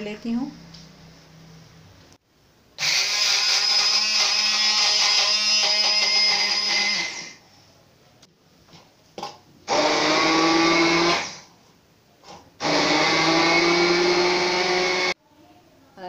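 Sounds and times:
stick blender running: 2.8s - 7.4s, 9.7s - 11.5s, 12.6s - 15.2s.

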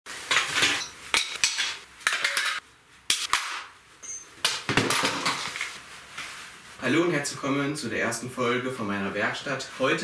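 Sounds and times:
tools clanking on concrete: 0.3s - 2.6s.

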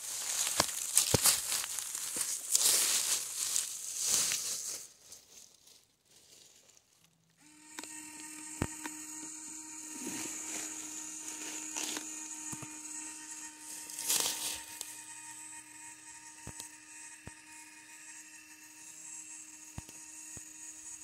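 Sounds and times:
electric motor whine: 7.4s - 21.0s.

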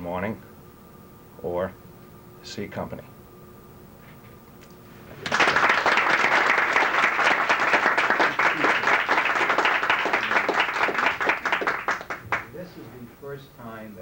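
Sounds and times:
audience applauding: 5.1s - 12.6s.

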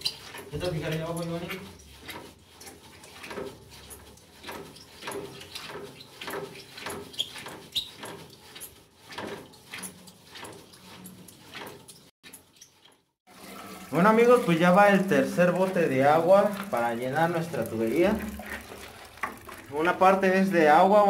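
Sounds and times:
high squeak of pump: 0.0s - 14.1s
hand pump plunger strokes: 0.0s - 20.4s.

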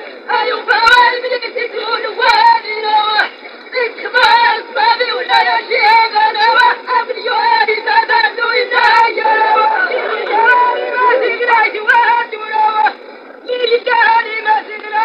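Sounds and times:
person chanting verse: 3.8s - 12.7s.

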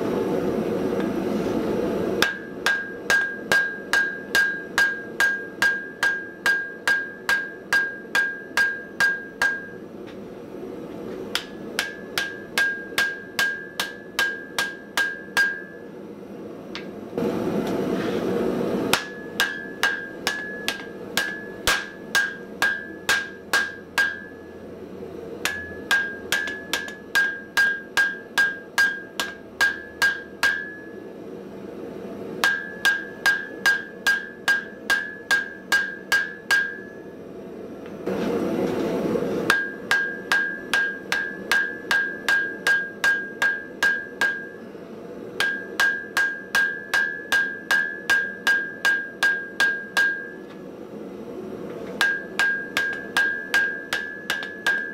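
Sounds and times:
hammer ringing on anvil: 2.2s - 9.8s, 11.4s - 15.9s, 18.9s - 24.6s, 25.4s - 31.0s, 32.4s - 37.1s, 39.5s - 44.6s, 45.4s - 50.5s, 52.0s - 54.9s.

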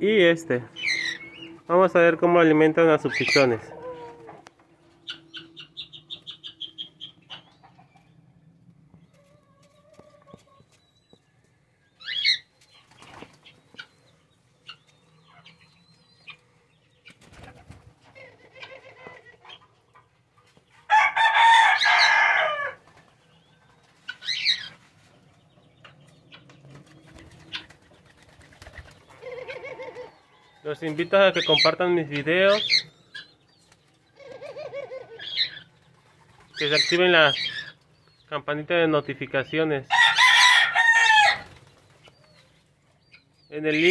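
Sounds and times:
high bird chirps: 0.7s - 1.7s, 4.9s - 8.2s, 11.9s - 17.2s
wings flapping: 12.6s - 13.9s, 17.0s - 19.1s, 26.6s - 30.1s, 35.8s - 36.9s, 41.3s - 42.3s
rooster crowing: 20.9s - 22.8s, 39.9s - 41.5s.

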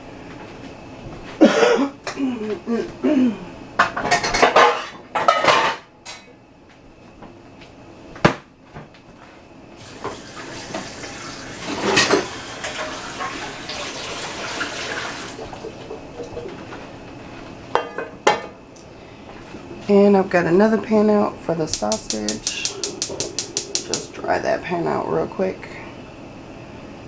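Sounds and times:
pots and pans clattering: 3.8s - 6.2s, 11.6s - 13.4s, 14.6s - 16.9s
kitchen tap running: 9.8s - 16.6s, 21.7s - 24.2s.

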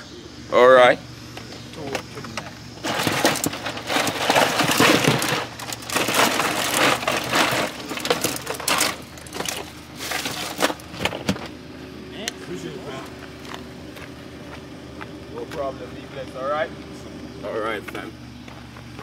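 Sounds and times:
plastic bags rustling: 2.8s - 11.0s.

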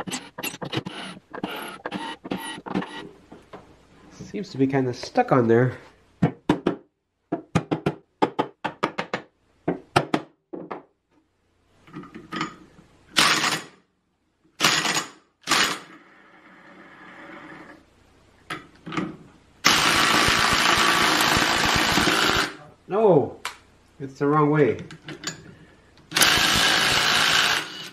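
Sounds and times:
impact driver hammering: 19.7s - 22.5s, 26.2s - 27.7s.

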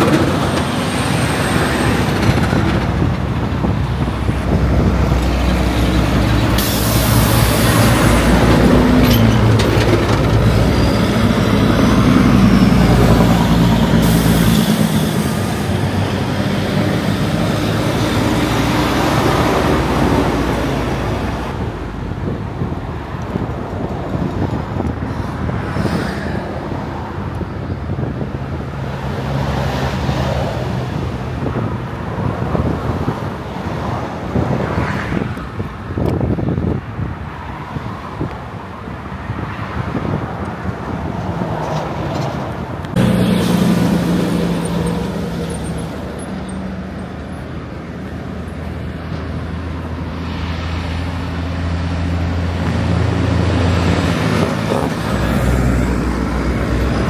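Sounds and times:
truck diesel engine: 0.0s - 25.6s, 42.1s - 57.0s
road traffic: 0.0s - 57.0s.

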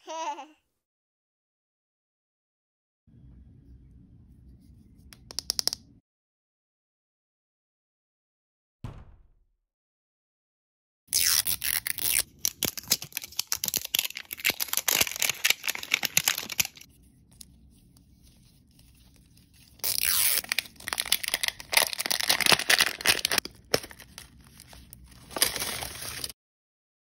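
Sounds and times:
plastic wrapping tearing: 11.1s - 16.9s, 19.1s - 26.4s.

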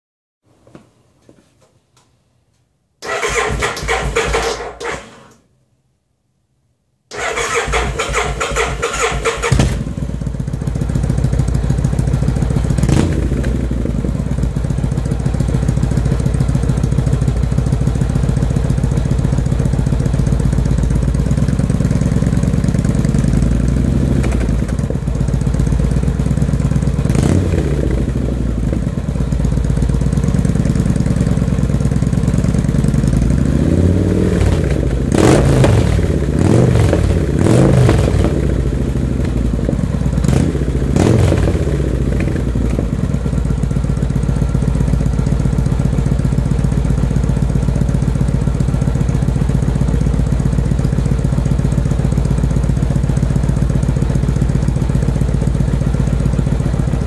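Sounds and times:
motorcycle electric starter cranking: 3.0s - 5.4s, 7.1s - 9.8s
motorcycle engine idling: 7.2s - 57.0s.

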